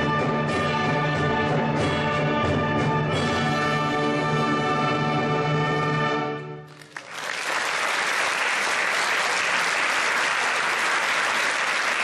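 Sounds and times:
audience applause: 6.7s - 12.0s.

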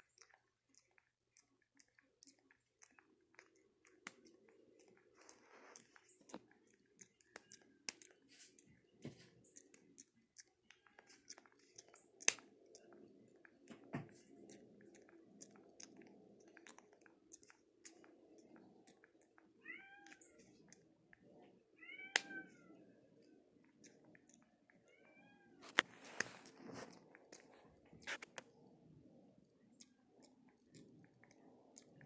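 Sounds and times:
fingers picking through hair: 25.6s - 28.4s.

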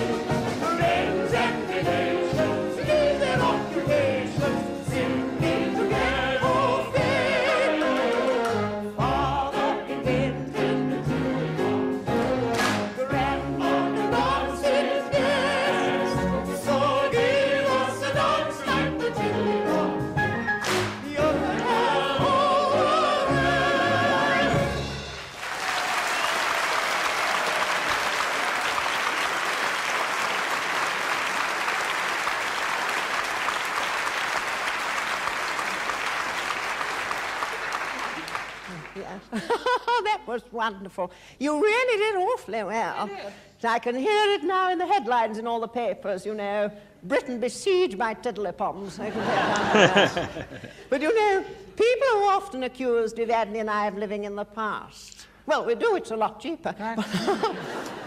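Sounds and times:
singer and chorus with piano: 0.0s - 25.2s
group hand claps: 12.5s - 13.0s, 20.6s - 21.1s, 25.2s - 39.1s
audience applauding: 25.0s - 39.3s.

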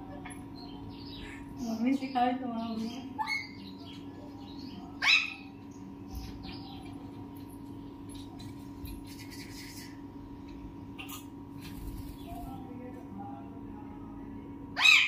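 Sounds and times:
steady low hum: 0.0s - 15.0s
parakeet chirping call: 2.8s - 5.5s, 14.8s - 15.0s.

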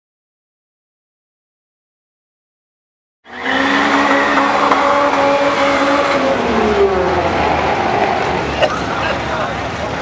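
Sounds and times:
drag car engines revving: 3.3s - 10.0s.

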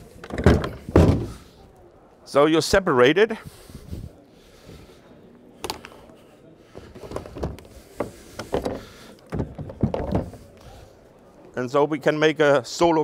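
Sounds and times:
hollow plastic kayak parts knocking: 7.0s - 10.3s.

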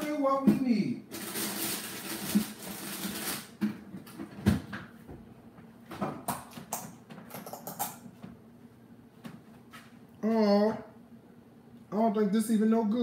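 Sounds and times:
containers knocking and clicking: 6.0s - 8.3s.

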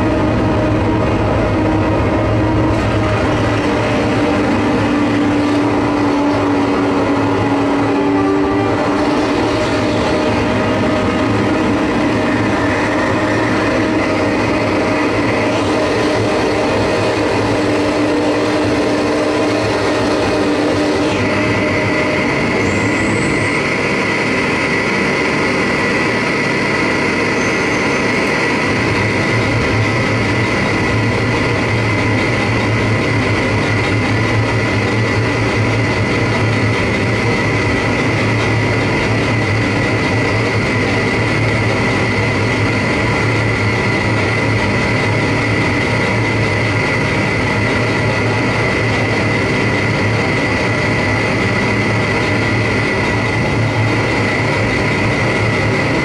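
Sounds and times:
low drone: 0.0s - 56.0s.

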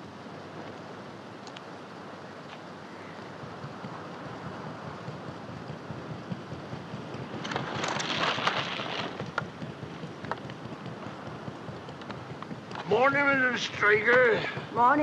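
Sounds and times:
water washing around boat hull: 3.6s - 15.0s.

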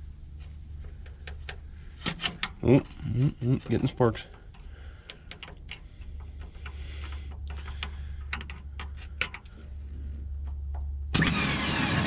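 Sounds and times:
starter motor whine: 11.1s - 12.0s.

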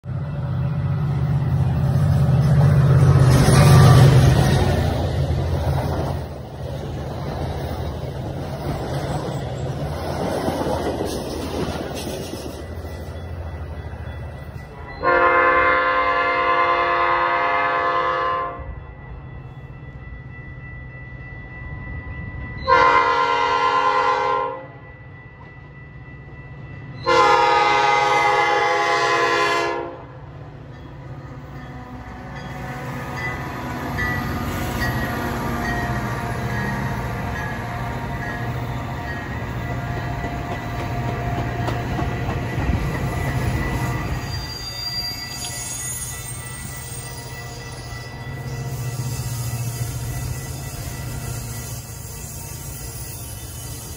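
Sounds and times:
train rumbling and clattering past: 0.0s - 53.9s
train air horn blasts: 3.4s - 4.4s, 15.0s - 18.7s, 22.6s - 24.8s, 27.0s - 30.1s.

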